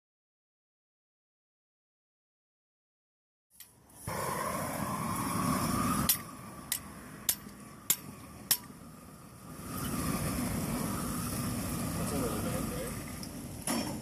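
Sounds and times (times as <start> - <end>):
propane torch flame rushing: 3.8 - 14.0.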